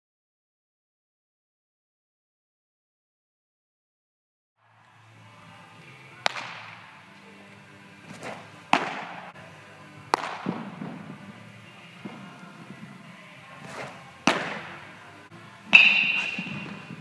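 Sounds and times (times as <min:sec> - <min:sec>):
baseballs smacking into gloves: 0:05.8 - 0:07.0, 0:08.0 - 0:12.8, 0:13.5 - 0:15.1, 0:15.7 - 0:17.0.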